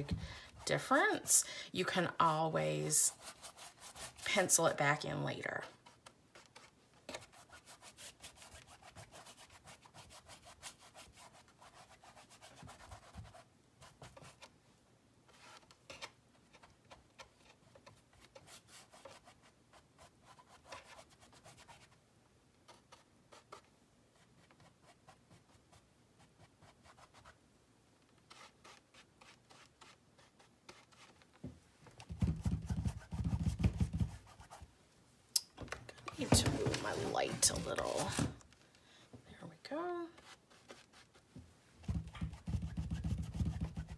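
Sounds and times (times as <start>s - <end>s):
paintbrush scrubbing canvas: 0.0s - 14.4s, 16.6s - 22.0s, 28.2s - 31.3s, 32.0s - 34.7s, 36.1s - 38.3s, 40.0s - 43.9s.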